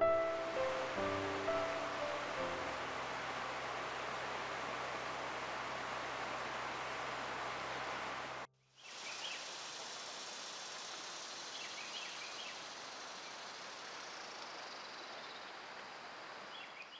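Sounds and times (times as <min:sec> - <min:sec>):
river water rushing: 0:00.0 - 0:08.5
steady hiss: 0:00.0 - 0:16.7.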